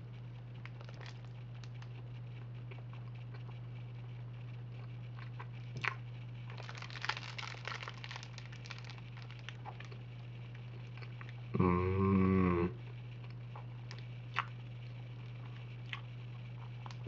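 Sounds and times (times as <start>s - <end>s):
steady low hum: 0.0s - 17.0s
person chewing a snack: 0.6s - 1.9s, 4.8s - 11.4s, 13.2s - 14.6s, 15.2s - 17.0s
plastic wrapper crackling: 0.6s - 2.0s, 6.5s - 10.0s.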